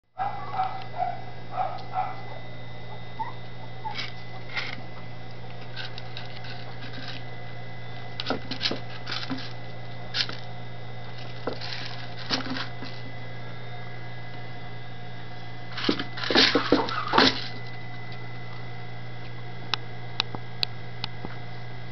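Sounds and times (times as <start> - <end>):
low electrical hum: 0.1 - 21.9
puppies squeaking: 0.2 - 4.6.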